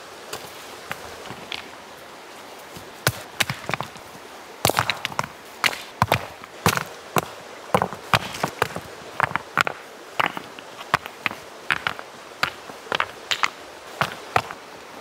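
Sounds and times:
stream rushing: 0.0 - 15.0
stones clacking together: 0.9 - 1.8, 3.0 - 14.6.

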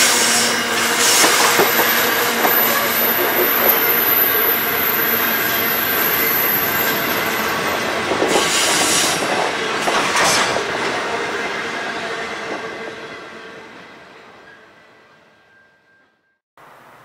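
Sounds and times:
train wheels rumbling on rails: 0.0 - 13.3.

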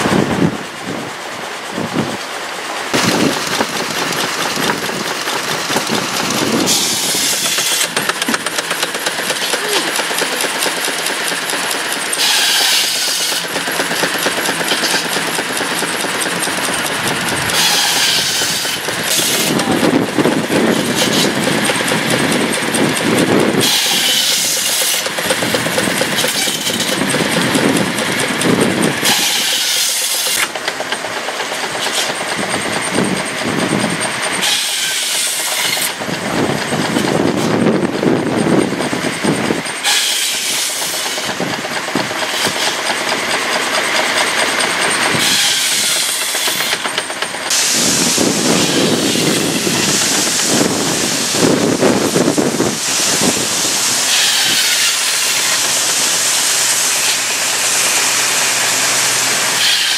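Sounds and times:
steam machinery clattering: 0.0 - 59.9
harsh steam hissing burst: 2.4 - 36.8, 39.0 - 59.9.

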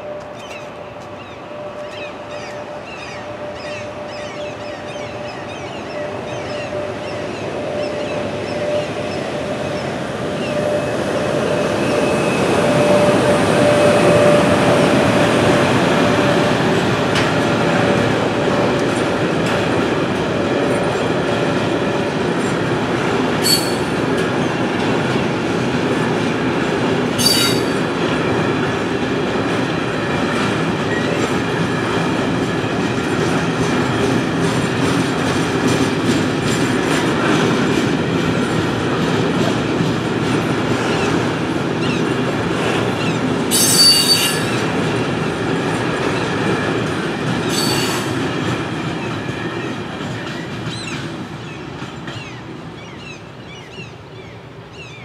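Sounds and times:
train wheels clattering on rail: 5.9 - 53.8.

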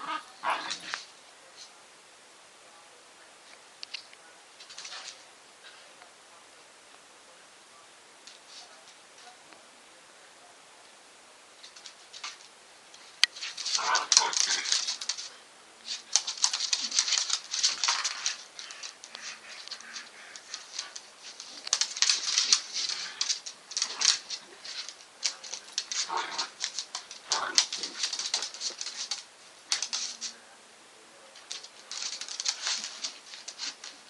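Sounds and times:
dog claws scrabbling on wooden floor: 11.6 - 15.3, 15.9 - 30.3, 31.4 - 34.0.

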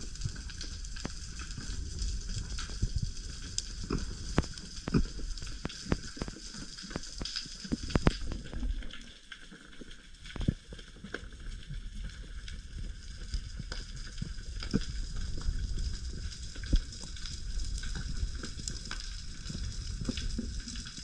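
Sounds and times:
snapping shrimp crackle: 0.0 - 8.8
low underwater rumble: 0.0 - 21.0
sharp underwater clicks: 0.2 - 8.9.

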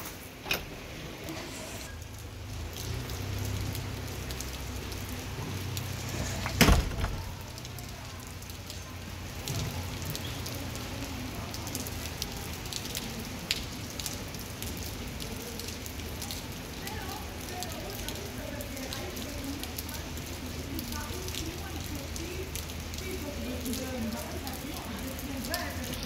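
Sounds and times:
rain on stone paving: 0.0 - 26.0
loud thump: 6.4 - 7.4.

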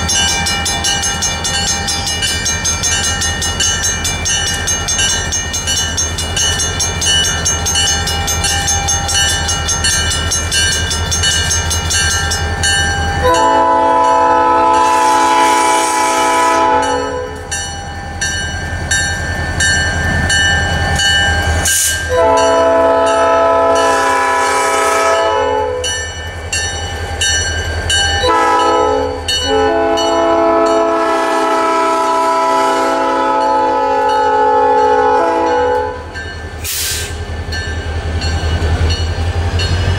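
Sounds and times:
diesel locomotive passing: 0.0 - 39.9
locomotive air horn blasts: 13.2 - 17.5, 21.7 - 25.9, 28.2 - 37.2.

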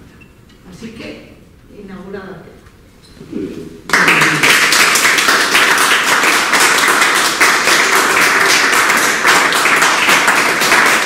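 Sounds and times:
small group applauding: 3.9 - 11.0.

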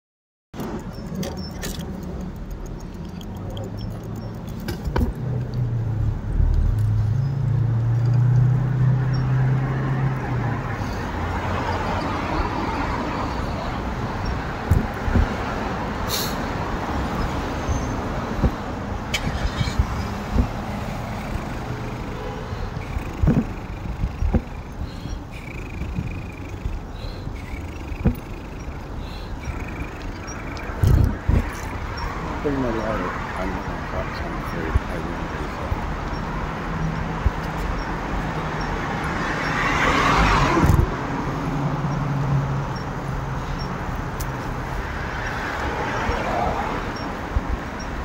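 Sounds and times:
sharp clicks and rattles: 0.6 - 5.7, 22.8 - 32.1
vehicle engine hum: 0.6 - 48.0
vehicle sweeping past: 38.5 - 42.6.

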